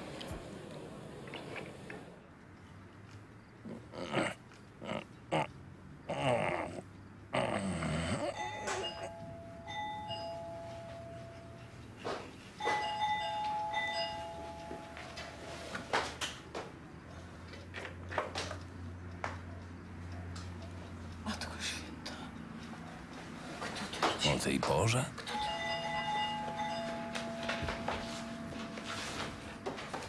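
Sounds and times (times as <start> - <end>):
dog snoring: 3.6 - 5.5, 6.1 - 9.1
two-note doorbell chime: 8.4 - 11.8, 12.6 - 15.9, 25.2 - 30.0.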